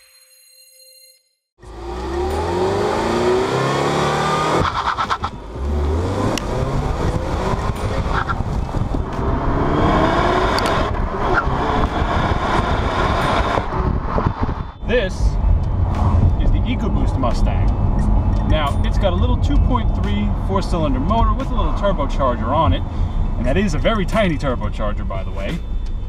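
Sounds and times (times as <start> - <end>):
car engine accelerating hard: 1.6 - 14.7
tyre and road noise: 1.6 - 26.0.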